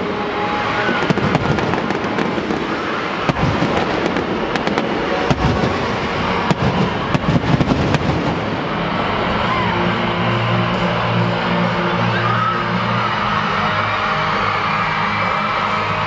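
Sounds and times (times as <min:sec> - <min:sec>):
fireworks bangs and crackling: 0:00.0 - 0:09.4.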